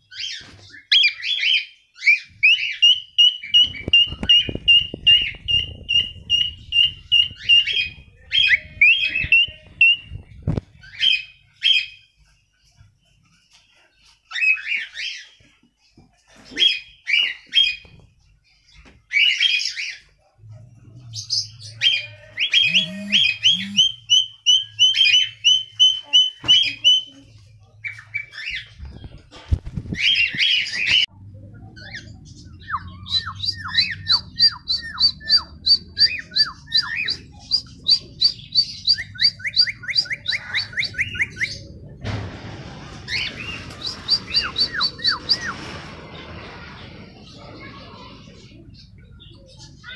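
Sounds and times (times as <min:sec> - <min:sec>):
cockatiels chirping and whistling: 0:00.1 - 0:12.0, 0:14.3 - 0:15.4, 0:21.3 - 0:27.1, 0:31.8 - 0:41.7, 0:43.1 - 0:45.7.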